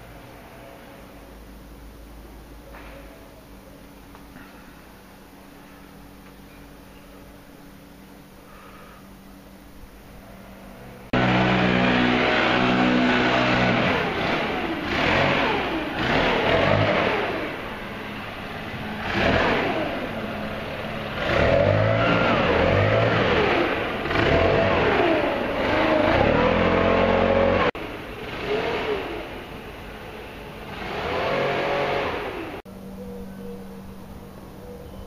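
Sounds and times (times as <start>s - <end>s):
low engine sound: 0.0s - 35.0s
motor engines revving: 10.7s - 32.6s.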